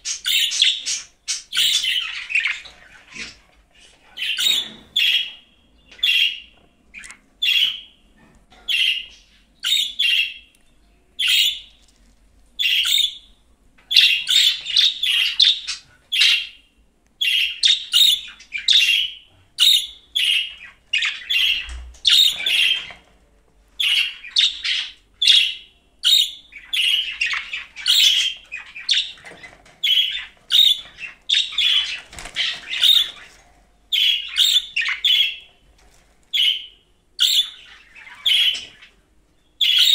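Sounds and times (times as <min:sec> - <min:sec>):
budgerigar chirping and chattering: 0:00.0 - 0:03.4, 0:12.6 - 0:13.3, 0:13.9 - 0:16.6, 0:17.2 - 0:23.0, 0:23.8 - 0:33.3, 0:33.9 - 0:35.5, 0:36.3 - 0:38.9, 0:39.6 - 0:39.9.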